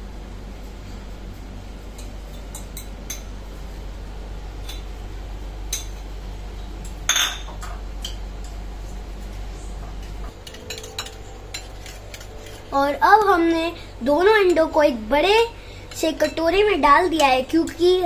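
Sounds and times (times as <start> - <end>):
metal fork scraping bowls: 10.3 - 12.8.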